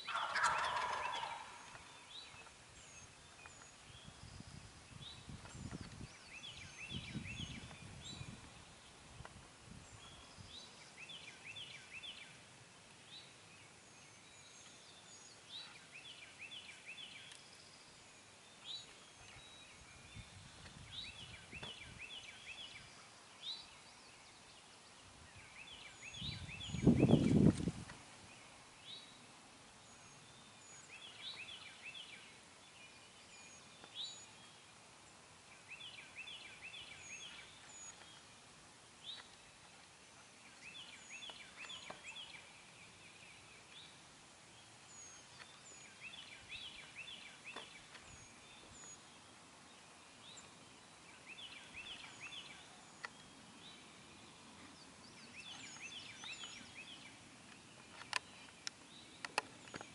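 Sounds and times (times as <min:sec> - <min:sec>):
turkey gobbling faintly: 0:00.1 - 0:02.0.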